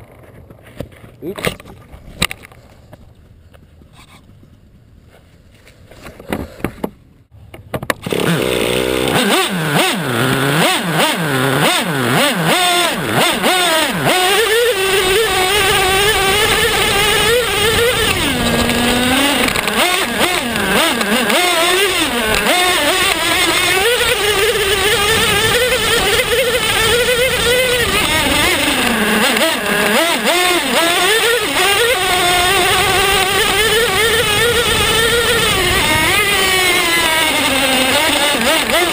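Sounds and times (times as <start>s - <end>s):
small nitro engine whining: 7.9s - 38.9s.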